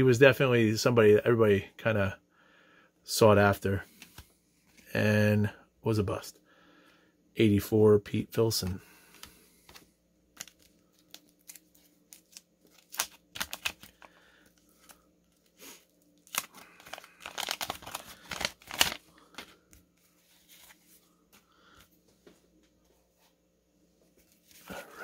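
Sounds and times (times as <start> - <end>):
paper wrapper tearing and crinkling: 10.4 - 19.4.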